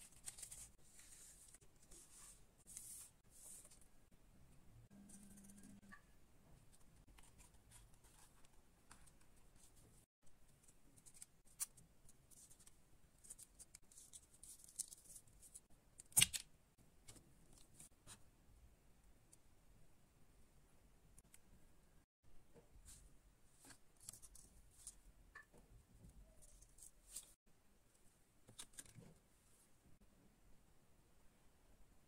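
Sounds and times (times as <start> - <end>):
paper and cardboard rustling: 0.0 - 3.8.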